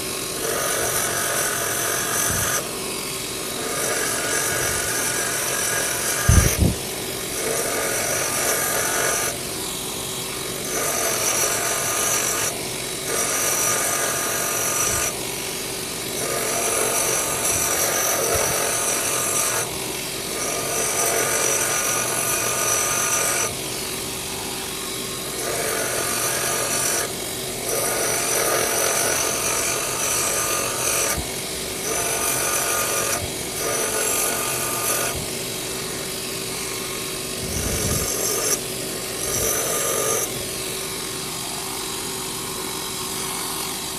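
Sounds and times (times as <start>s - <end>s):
belt sander motor running: 0.0s - 43.9s
knife blade grinding on belt: 3.4s - 9.4s, 31.8s - 35.2s, 37.4s - 40.3s.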